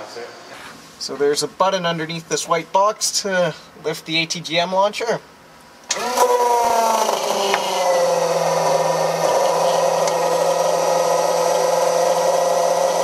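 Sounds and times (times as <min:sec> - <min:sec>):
hydraulic pump humming and whining: 0:05.9 - 0:13.0.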